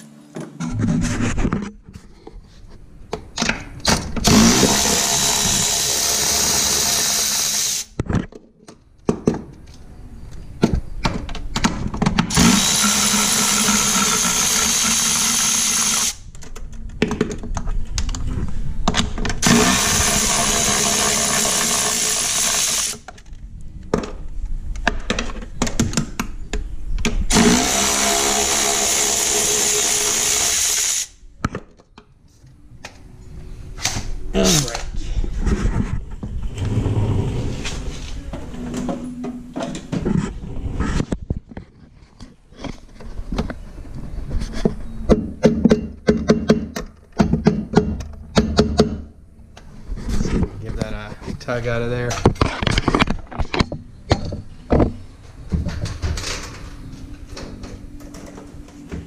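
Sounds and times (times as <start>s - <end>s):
handheld power tool running: 4.2s - 7.9s, 12.3s - 16.2s, 19.4s - 23.0s, 27.3s - 31.1s
tool clatter and knocks: 52.0s - 59.0s.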